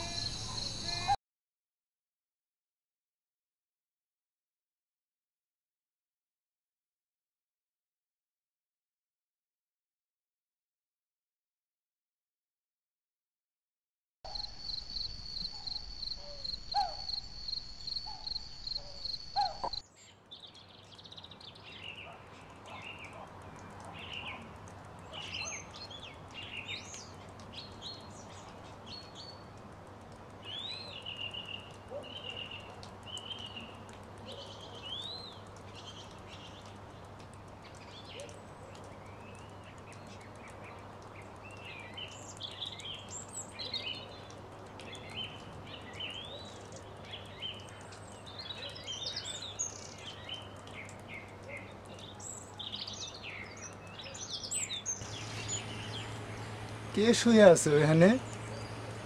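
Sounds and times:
birds chirping and calling: 0.0s - 1.2s, 14.4s - 19.8s, 41.5s - 59.0s
insects trilling: 0.0s - 1.2s, 14.3s - 19.8s.

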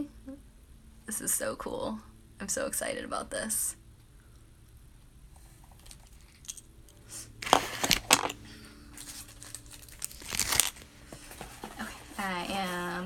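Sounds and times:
cardboard box rustling: 7.4s - 8.4s, 9.0s - 13.0s.

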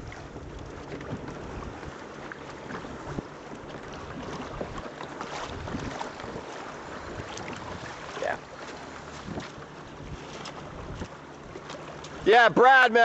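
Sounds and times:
wind buffeting microphone: 0.0s - 2.0s, 5.4s - 8.4s, 9.1s - 11.2s
water splashing along boat hull: 0.0s - 13.0s.

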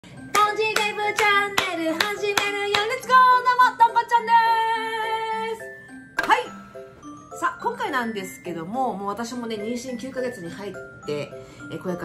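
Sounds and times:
woman clapping hands: 0.3s - 3.0s.

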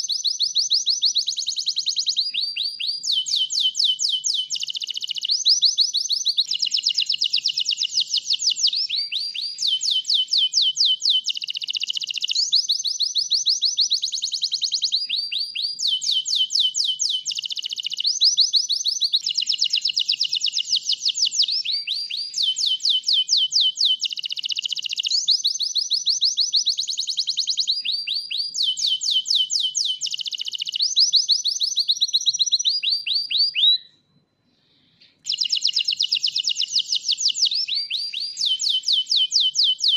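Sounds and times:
canary singing fast trills: 0.0s - 33.9s, 34.9s - 39.9s.

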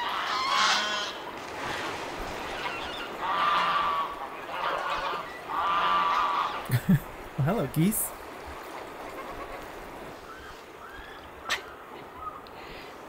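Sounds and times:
geese honking: 0.0s - 1.3s, 2.5s - 6.6s.

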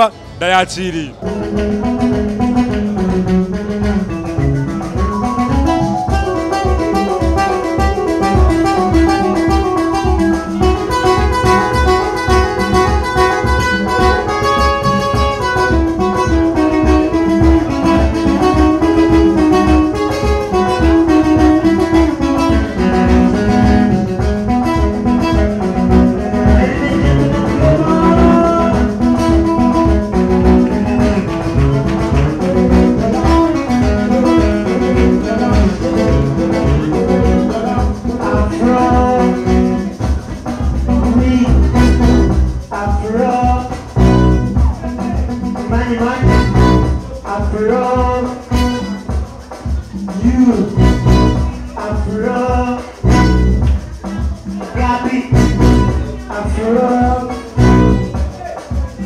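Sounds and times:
guitar melody: 0.0s - 40.0s, 41.4s - 42.6s, 43.9s - 44.6s, 46.2s - 47.0s, 50.7s - 51.6s, 53.0s - 54.1s, 55.3s - 56.2s, 57.4s - 58.2s
steady drum beat: 15.2s - 59.0s.

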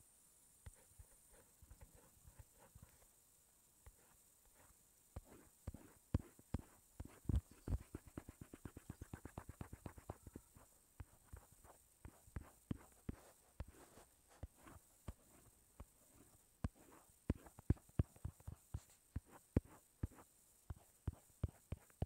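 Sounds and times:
taps on a touchscreen: 5.2s - 10.4s, 12.0s - 13.8s, 16.6s - 22.0s.

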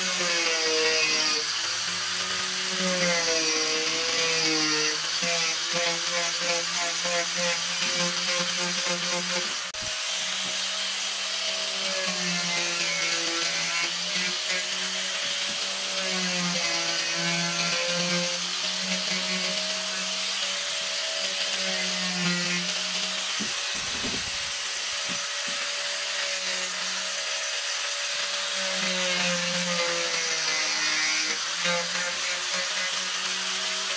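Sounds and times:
angle grinder grinding wood: 0.0s - 33.9s
dull bump: 23.4s - 24.6s.

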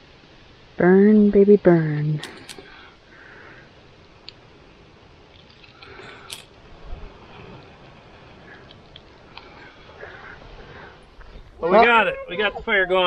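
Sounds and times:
faint crackles: 0.0s - 11.6s
soft breathy blowing: 8.3s - 11.6s.

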